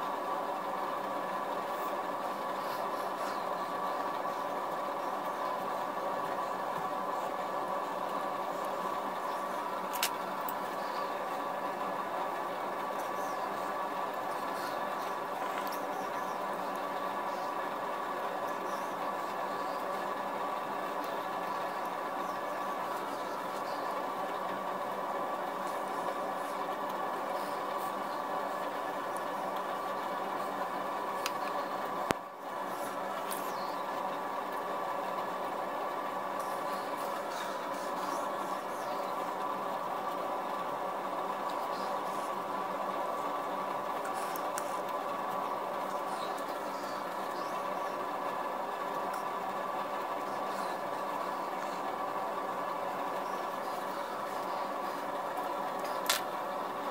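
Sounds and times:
mechanical hum: 0:00.0 - 0:56.9.

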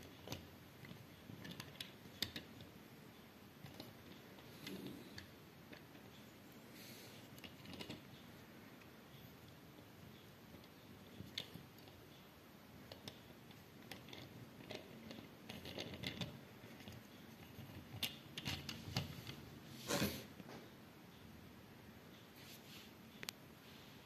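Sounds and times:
scrape and rustle: 0:18.7 - 0:20.3, 0:22.4 - 0:23.0.

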